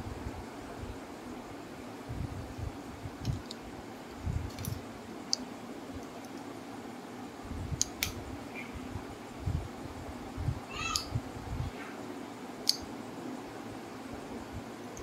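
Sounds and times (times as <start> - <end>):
steady low hum: 0.0 - 15.0
sharp clicks: 12.6 - 12.9.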